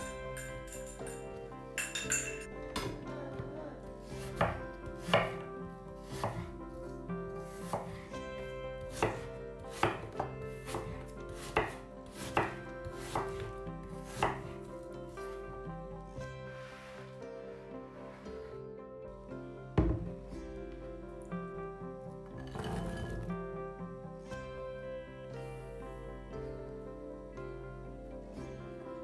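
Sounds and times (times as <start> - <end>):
knife knocking on cutting board: 19.8 - 20.1.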